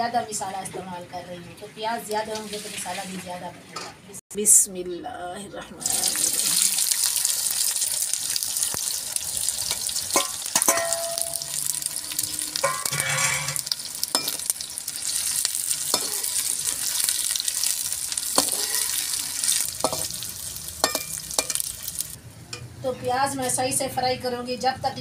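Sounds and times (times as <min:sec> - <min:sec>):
onions sizzling in hot oil: 0:05.8 - 0:22.2
spoon clinking against pot: 0:10.1 - 0:11.6, 0:12.6 - 0:14.5, 0:15.9 - 0:16.5, 0:18.4 - 0:19.0, 0:19.8 - 0:20.2, 0:20.8 - 0:21.7.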